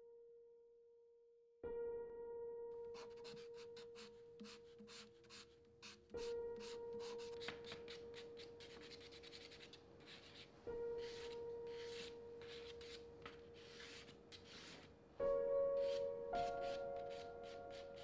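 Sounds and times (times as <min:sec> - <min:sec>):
charcoal scratching on paper: 0:03.0 - 0:14.9, 0:15.8 - 0:18.0.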